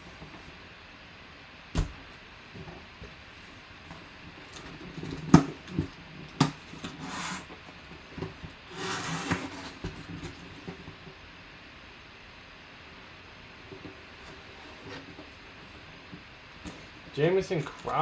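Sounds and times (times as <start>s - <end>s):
knocks on cardboard box: 1.8s - 2.0s
cardboard scraping and sliding: 4.5s - 11.0s, 14.2s - 15.4s.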